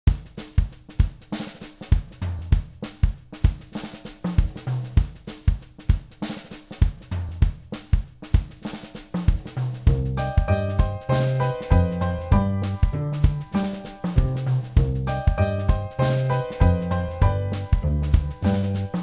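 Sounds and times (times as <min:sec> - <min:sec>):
drum kit playing steady beat: 0:00.1 - 0:19.0
low bass line: 0:09.9 - 0:19.0.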